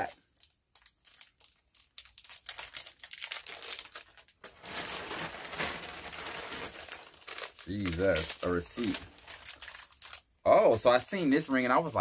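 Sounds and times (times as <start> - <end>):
packaging crinkling: 0.0 - 12.0.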